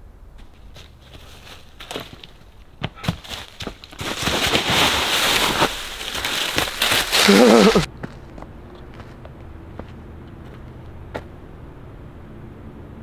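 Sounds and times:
footsteps on dry leaves: 0.4s - 2.4s, 3.0s - 8.3s.

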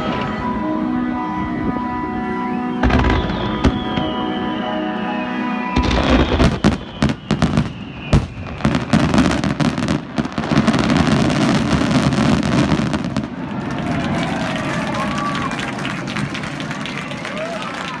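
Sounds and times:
fireworks crackling and booming: 2.7s - 4.7s, 5.7s - 14.4s.

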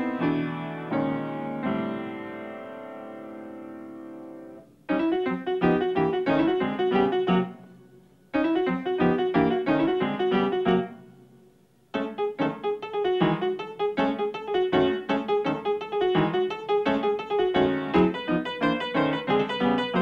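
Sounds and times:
solo piano: 0.0s - 20.0s.

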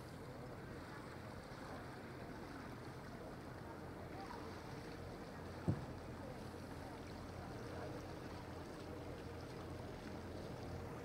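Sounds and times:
motor boat humming: 0.0s - 11.0s
short thump: 5.6s - 5.9s.

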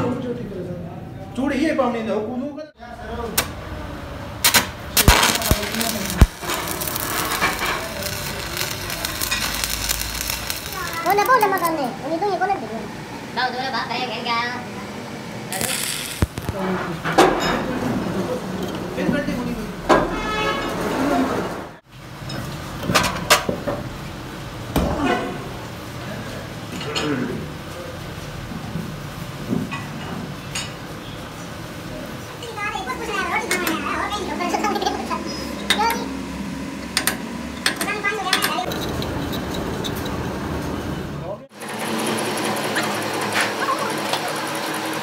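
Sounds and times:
arc welding crackle: 4.4s - 12.0s, 15.5s - 16.8s
angle grinder grinding steel: 5.0s - 11.7s, 15.5s - 16.6s.

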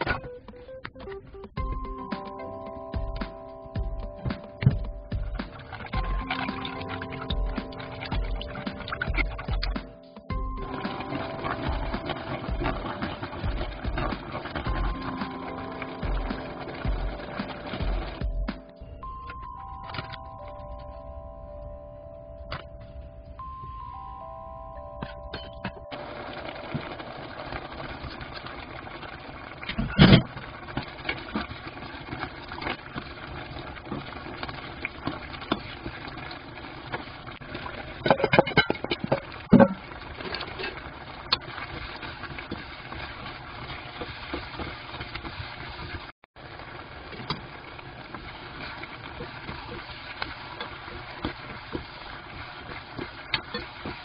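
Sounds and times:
utensils scraping a pan: 29.6s - 46.1s, 48.1s - 54.0s
utensils clattering on cookware: 33.9s - 46.0s, 48.5s - 54.0s.

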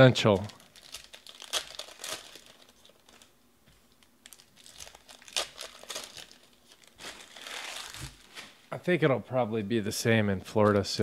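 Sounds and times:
foil wrappers crinkling and tearing: 0.1s - 3.4s, 4.2s - 8.6s.

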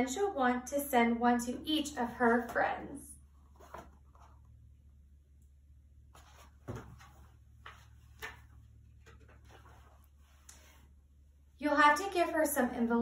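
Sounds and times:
book pages turning and rustling: 3.4s - 4.5s, 6.1s - 11.0s.

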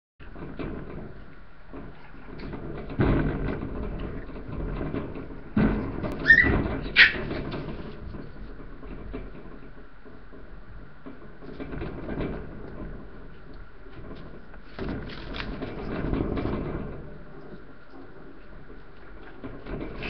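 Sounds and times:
heavy thumps: 0.2s - 17.4s
rustling and clattering in crate: 0.2s - 20.0s
puppy high squeals: 6.2s - 7.2s.

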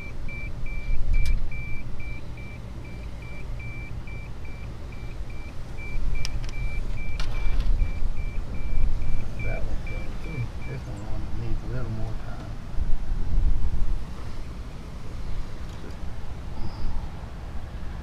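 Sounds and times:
thermometer beeping: 0.0s - 11.0s.

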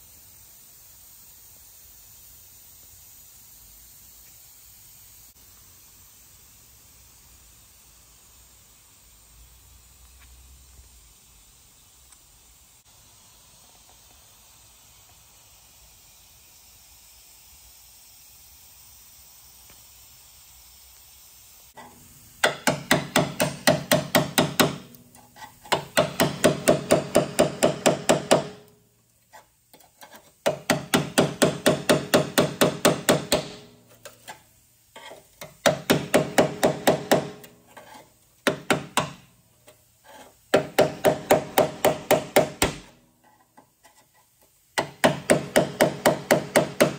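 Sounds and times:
faint steady hiss: 0.0s - 46.9s
hammer on chisel against sheet metal: 22.4s - 28.7s, 30.4s - 33.8s, 35.0s - 39.2s, 40.5s - 43.0s, 44.8s - 46.9s.

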